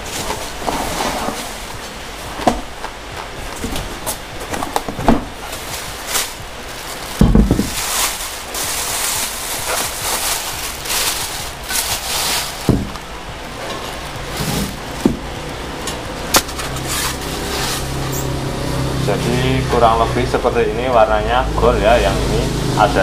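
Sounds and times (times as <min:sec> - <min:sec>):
packing plastic crinkling: 0:00.0 - 0:18.4
heavy thump: 0:07.2 - 0:07.8, 0:12.7 - 0:13.0.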